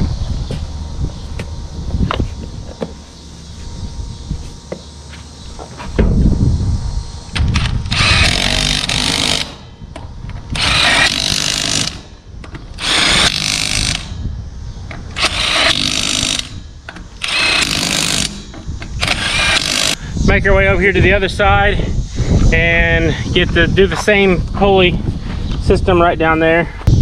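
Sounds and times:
power tool tightening bolts: 0:07.4 - 0:09.6, 0:10.5 - 0:14.1, 0:15.1 - 0:20.0.

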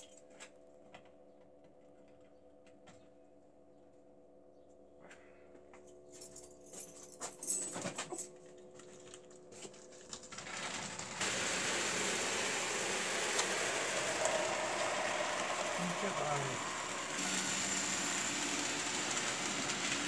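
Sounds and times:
model train running on track: 0:10.4 - 0:20.0.

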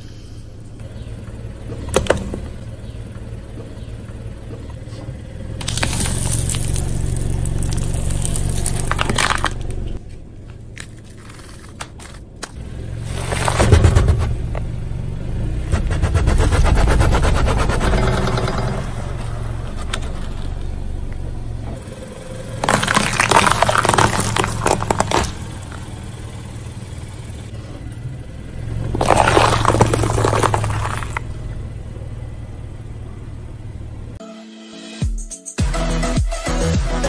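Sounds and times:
car engine running low: 0:00.0 - 0:34.2
crunching and splitting: 0:03.6 - 0:14.8, 0:15.8 - 0:27.1, 0:28.7 - 0:31.6
tyre crushing food: 0:05.6 - 0:10.0, 0:10.7 - 0:14.2, 0:22.6 - 0:25.9, 0:28.9 - 0:31.3.

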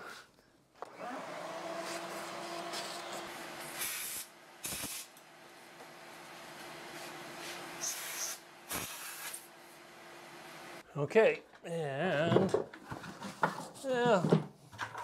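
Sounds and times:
shop vacuum running: 0:00.8 - 0:10.8
vacuum hose hissing rushes: 0:01.8 - 0:05.1, 0:07.4 - 0:09.5.

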